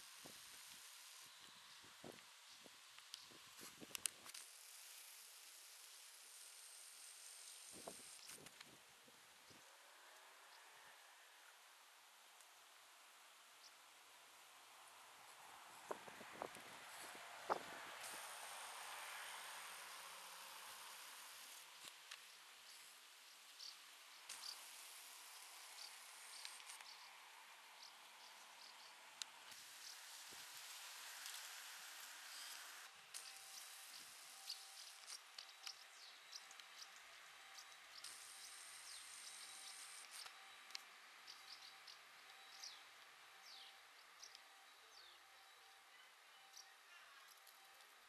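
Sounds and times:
steady hiss: 0.0s - 44.4s
faint insect chirping: 12.5s - 48.0s.

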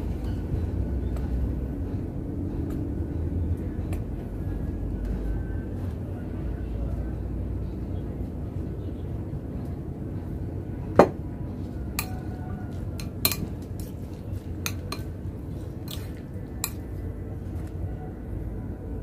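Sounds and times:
spoon clinking against ceramic bowl: 11.9s - 12.4s, 13.0s - 13.9s, 14.6s - 15.2s, 15.9s - 17.0s.

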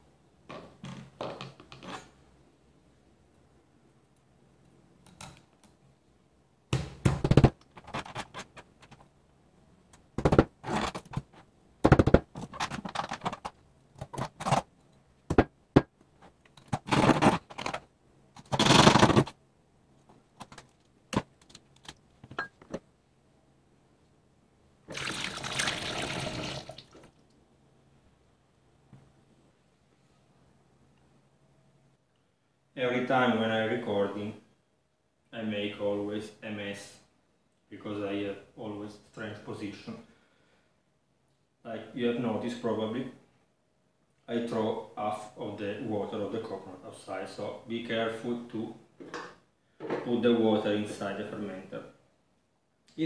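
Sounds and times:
liquid pouring through funnel: 24.9s - 27.2s.

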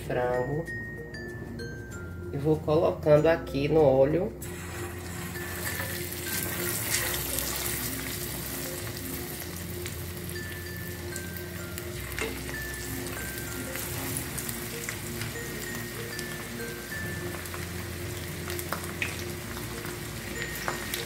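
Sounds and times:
soft music with bell-like notes: 0.0s - 21.0s
chicken deep-frying in oil: 4.4s - 21.0s.

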